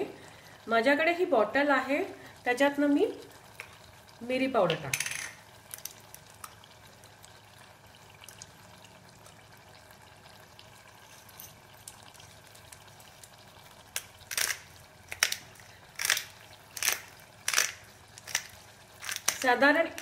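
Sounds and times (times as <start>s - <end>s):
pepper grinder crunching: 14.2s - 20.0s.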